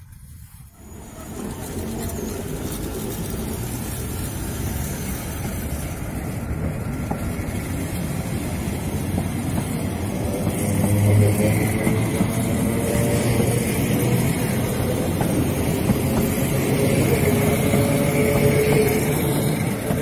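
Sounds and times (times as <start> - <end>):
train wheels rumbling on rail: 0.0 - 20.0.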